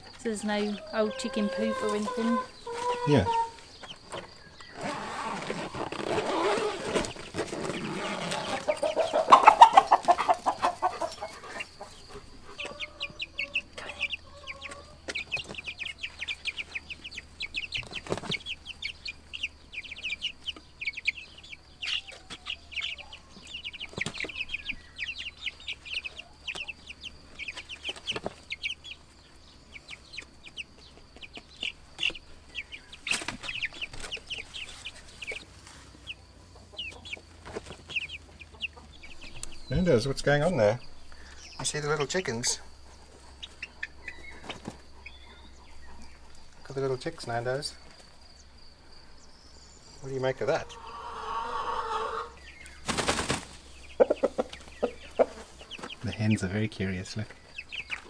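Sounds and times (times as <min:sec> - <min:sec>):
chicks peeping: 0:00.0 - 0:58.0.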